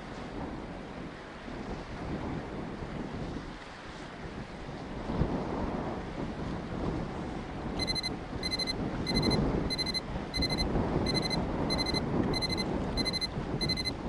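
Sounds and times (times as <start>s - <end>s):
electronic timer alarm beeping: 7.8s - 14.0s.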